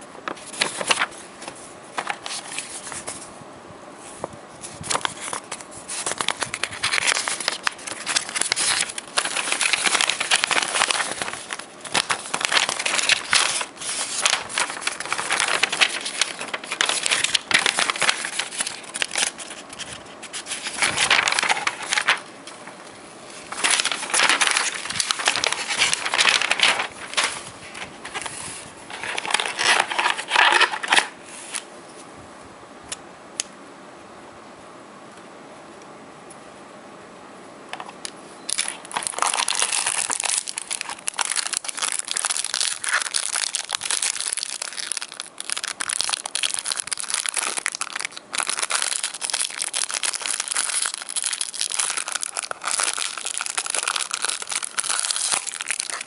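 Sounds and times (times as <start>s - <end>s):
paper rustling and crinkling: 0.2s - 3.4s, 4.1s - 31.7s, 38.5s - 56.0s.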